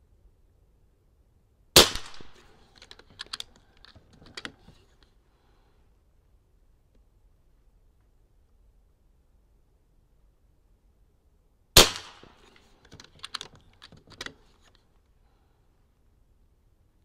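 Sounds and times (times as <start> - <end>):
air rifle shot: 1.8 - 2.6, 11.8 - 12.7
small metallic action clicks: 1.9 - 5.1, 12.1 - 14.9.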